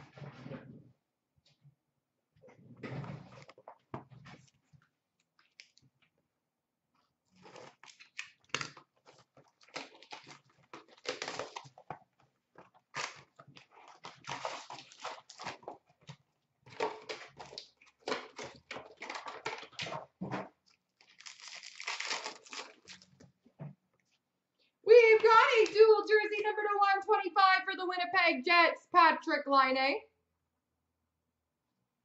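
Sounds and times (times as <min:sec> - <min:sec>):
wrappers tearing and crinkling: 0:07.4 - 0:12.0, 0:12.6 - 0:16.1, 0:21.0 - 0:23.2.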